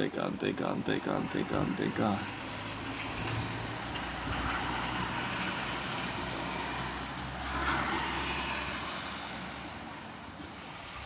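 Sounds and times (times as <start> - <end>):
car engine humming: 0.0 - 5.2
heavy rain: 1.6 - 11.0.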